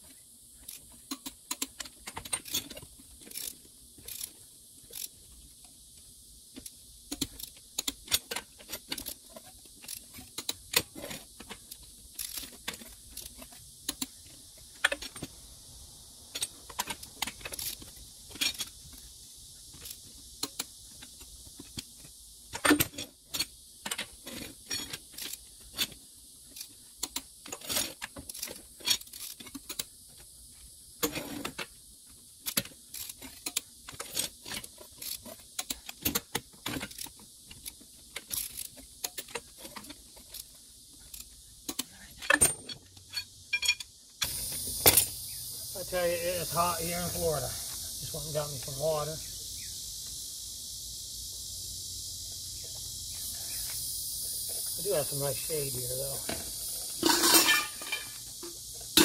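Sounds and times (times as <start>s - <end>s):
wrench and lug nuts clinking: 38.2s - 45.2s, 56.2s - 59.0s
loud metal clank: 57.0s - 58.2s.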